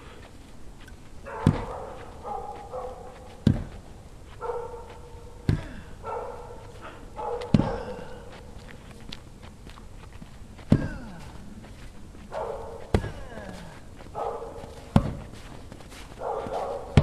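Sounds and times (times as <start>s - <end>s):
heavy thumps: 1.3s - 2.1s, 3.4s - 4.0s, 5.4s - 6.0s, 6.7s - 8.3s, 10.5s - 11.5s, 12.7s - 15.5s.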